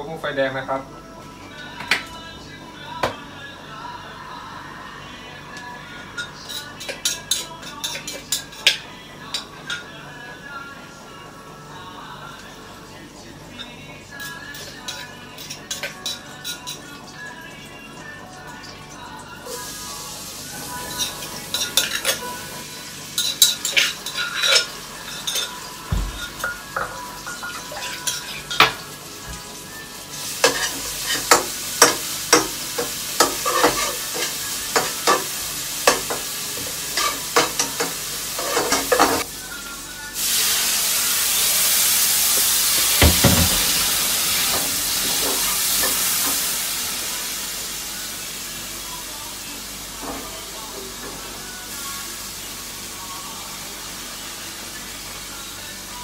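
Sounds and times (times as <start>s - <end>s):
loud sizzle in hot oil: 3.7s - 10.7s, 11.7s - 56.0s
utensils clicking on pans: 5.6s - 9.9s, 13.6s - 17.2s, 20.8s - 29.5s, 30.2s - 39.3s, 41.3s - 46.7s.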